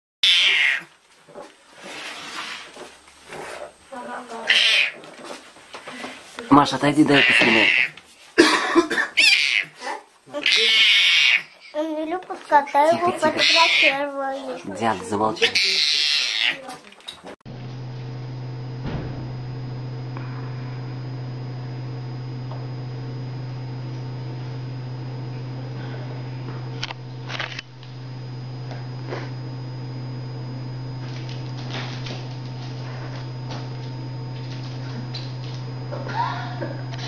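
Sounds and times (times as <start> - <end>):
low electrical hum: 17.0 - 37.0
faint high whine: 17.6 - 37.0.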